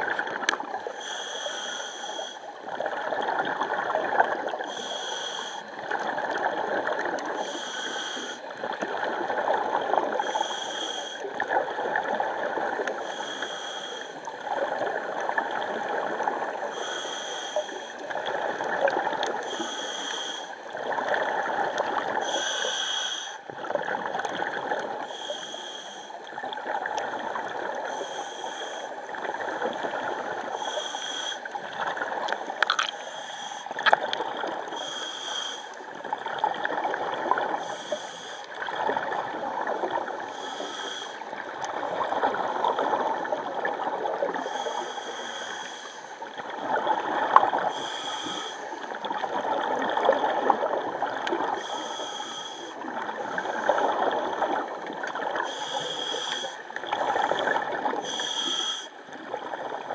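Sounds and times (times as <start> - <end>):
regulator hiss: 19.5 - 20.5.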